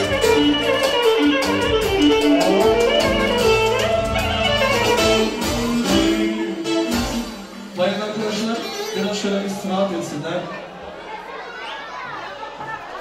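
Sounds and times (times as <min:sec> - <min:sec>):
live band dance music: 0:00.0 - 0:09.9.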